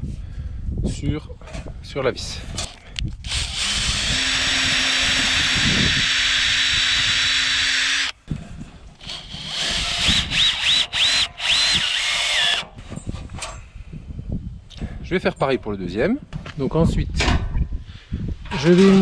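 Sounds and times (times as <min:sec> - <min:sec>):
cordless drill boring through steel: 0:03.2 - 0:08.2, 0:09.0 - 0:12.8
drill motor whining in spurts: 0:03.2 - 0:08.2, 0:09.0 - 0:12.7.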